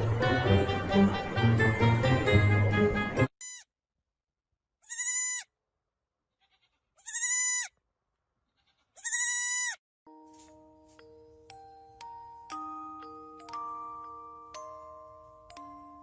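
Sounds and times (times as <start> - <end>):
baby goat bleating: 3.4 - 3.7, 4.8 - 5.5, 6.3 - 7.8, 8.5 - 9.8
glockenspiel-like music: 10.1 - 16.0.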